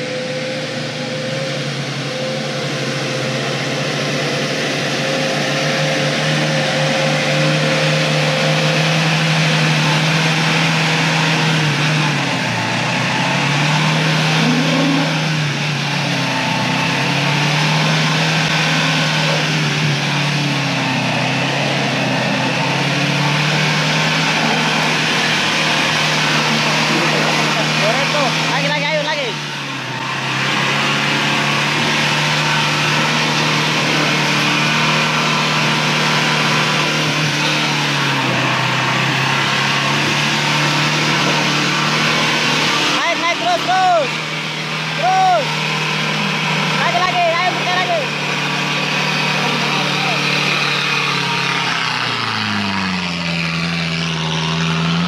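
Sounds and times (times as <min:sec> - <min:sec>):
pickup engine under load: 0:00.0 - 0:55.0.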